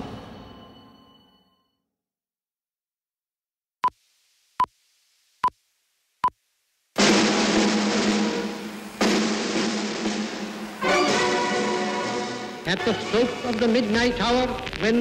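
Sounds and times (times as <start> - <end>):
dramatic music with drums: 7.0 - 13.6.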